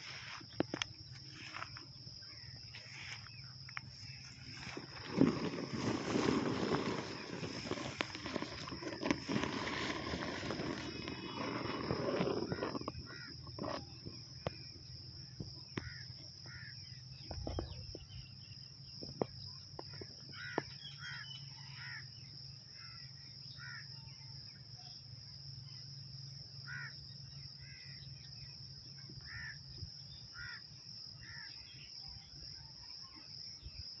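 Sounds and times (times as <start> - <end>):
grass rustling on microphone: 0.0 - 14.1
high-pitched insect drone: 0.0 - 15.0.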